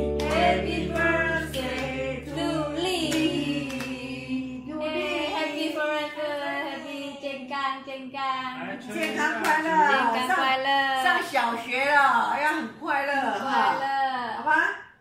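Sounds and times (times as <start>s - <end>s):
background music track: 0.0s - 5.1s
group singing together: 0.0s - 7.5s.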